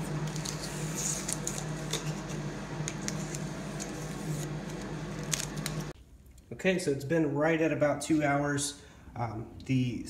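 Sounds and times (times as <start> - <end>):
steady low hum: 0.0 - 10.0
tape peeling off: 0.2 - 6.0.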